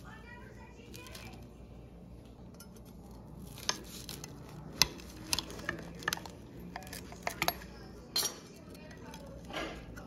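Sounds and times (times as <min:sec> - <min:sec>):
knife cutting toasted sandwich: 0:03.4 - 0:06.1.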